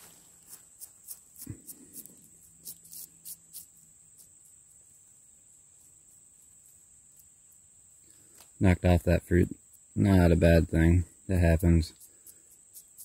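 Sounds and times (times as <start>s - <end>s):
brush scratching soil: 0.0s - 7.7s, 8.9s - 13.0s
high-pitched insect drone: 0.5s - 8.2s.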